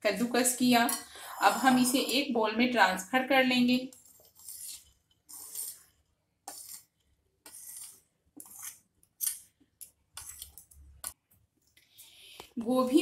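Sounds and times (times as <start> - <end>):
spoon scraping a paper plate: 1.5 - 2.3, 3.9 - 5.9, 6.5 - 9.4, 10.2 - 10.6.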